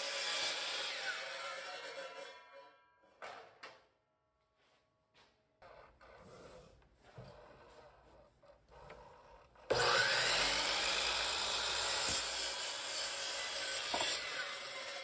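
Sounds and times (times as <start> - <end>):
saw cutting through wood: 0.0 - 2.6, 7.4 - 15.0.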